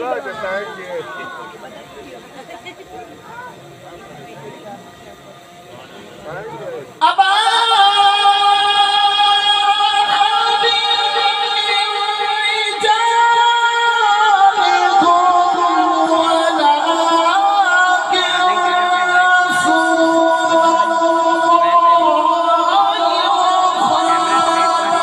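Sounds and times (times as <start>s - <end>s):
man reciting melodically: 6.9s - 25.0s.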